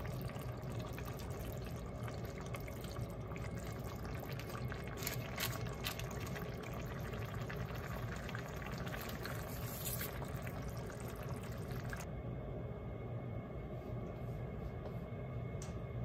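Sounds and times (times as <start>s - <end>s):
broth bubbling: 0.0s - 12.1s
wet paper rustling: 9.3s - 10.4s.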